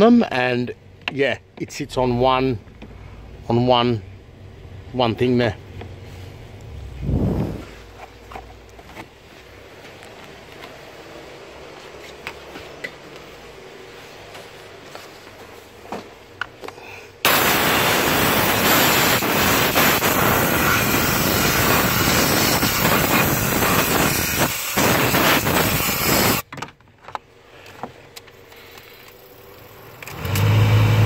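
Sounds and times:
compressed air hissing: 16.8 - 26.4.

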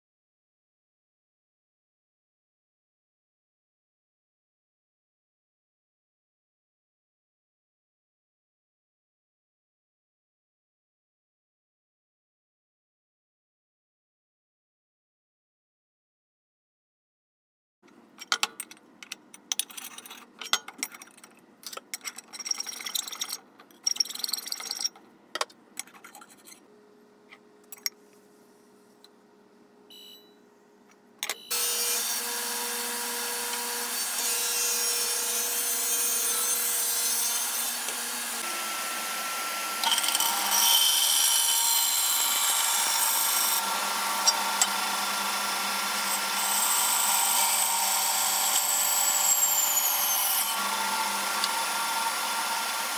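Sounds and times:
clicks and knocks of metal stock: 18.2 - 24.0
power saw cutting metal: 31.5 - 52.9.

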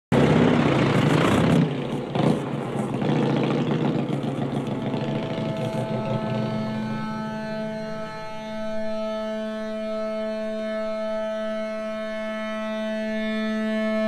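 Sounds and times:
scooter engine running: 0.1 - 7.4
steady high tone: 0.2 - 14.0.

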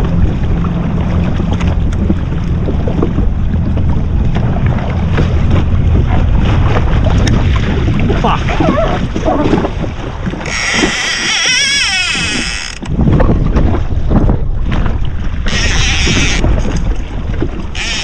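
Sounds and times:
water noise: 0.0 - 18.0
wind: 0.0 - 18.0
fishing reel drag screaming: 10.5 - 12.9, 15.5 - 16.4, 17.8 - 18.0.

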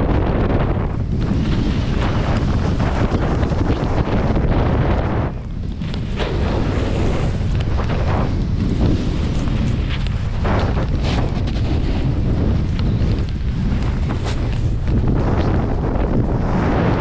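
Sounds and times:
wind rumbling on microphone: 0.0 - 17.0
snowboard spraying snow: 1.1 - 13.0.

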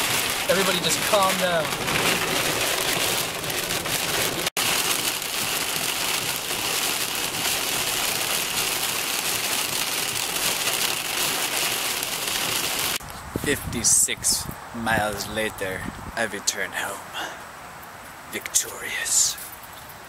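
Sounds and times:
heavy rain on car roof: 0.0 - 13.0.

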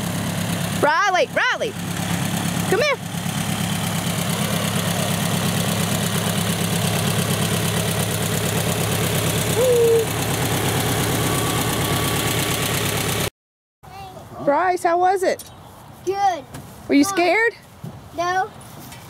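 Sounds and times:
ultralight plane engine idling: 0.0 - 13.3.

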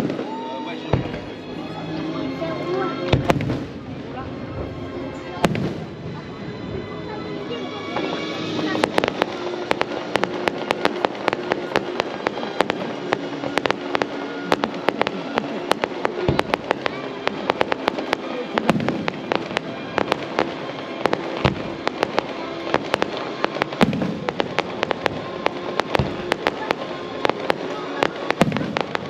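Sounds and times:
fireworks crackling: 0.0 - 29.0
deep booms of shells bursting: 23.7 - 26.6.

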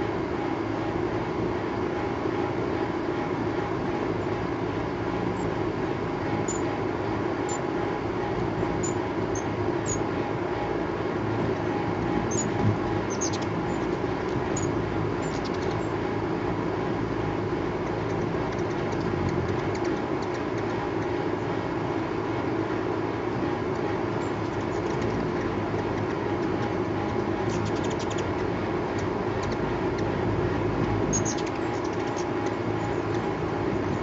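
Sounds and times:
steady low noise: 0.0 - 34.0
hummingbird chip calls: 6.4 - 6.7, 7.4 - 7.7, 8.6 - 10.1, 11.5 - 16.0, 17.8 - 21.5, 24.2 - 34.0.

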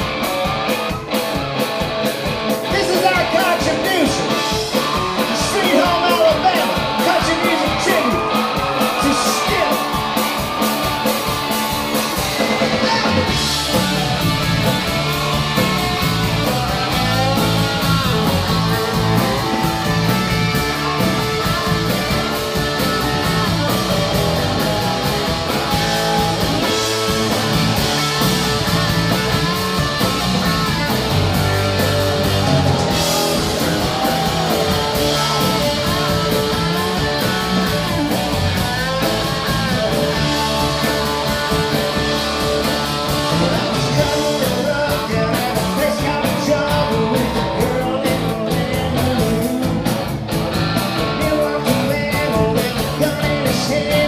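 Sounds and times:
country rock band playing: 0.0 - 54.0
drums: 0.0 - 54.0
electric guitar: 0.0 - 54.0
person singing lead vocal: 2.7 - 10.0, 12.4 - 13.5, 43.2 - 49.8, 51.0 - 54.0.

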